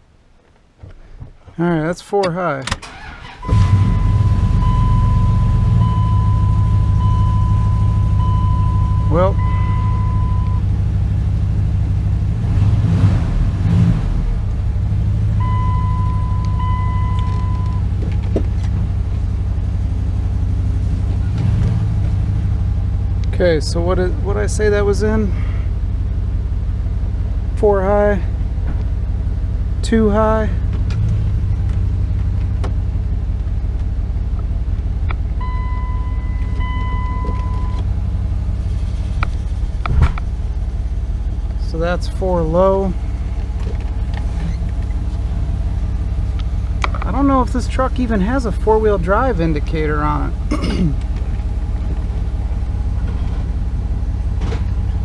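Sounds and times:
truck engine idling: 2.9 - 12.4, 14.3 - 55.0
steady beep-like tone: 3.5 - 10.6, 15.4 - 17.8, 35.4 - 37.8.

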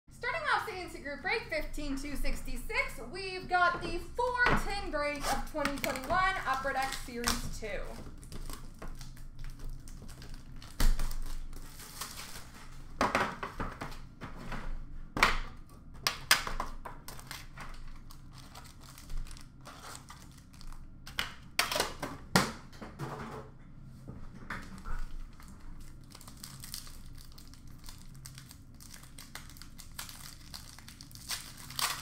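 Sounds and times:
plastic wrap crinkling: 3.8 - 13.0, 16.2 - 21.7, 24.6 - 32.0.

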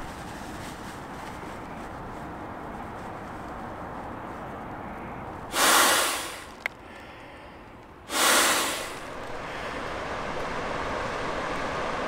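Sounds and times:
man blowing into sleeping pad: 5.5 - 6.6, 8.1 - 9.1.

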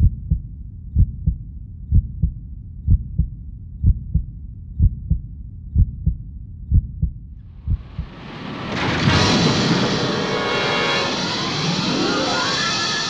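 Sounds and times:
heartbeat thumps: 0.0 - 8.2.

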